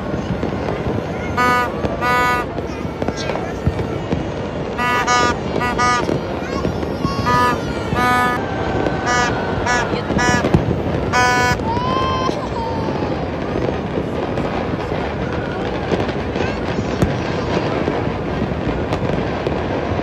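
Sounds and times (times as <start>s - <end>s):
distant fireworks crackling and popping: 0.0s - 20.0s
short high-pitched tones: 4.8s - 6.4s, 9.1s - 11.6s.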